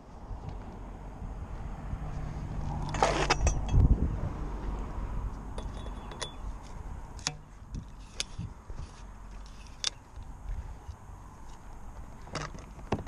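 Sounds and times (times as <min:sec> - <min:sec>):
metallic clicks and clinks: 0:05.6 - 0:06.5.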